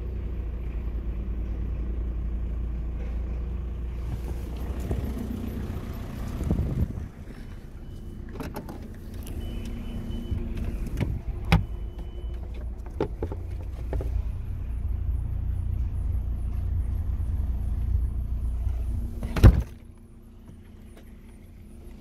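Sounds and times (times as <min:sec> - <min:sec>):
steady low rumble: 0:00.0 - 0:22.0
knocks and clicks at car boot: 0:10.6 - 0:14.2.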